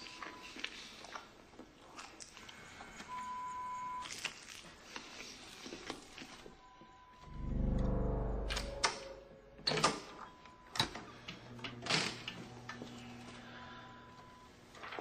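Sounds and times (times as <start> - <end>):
high electronic beep: 7.0 - 9.7
low rumble: 7.2 - 9.6.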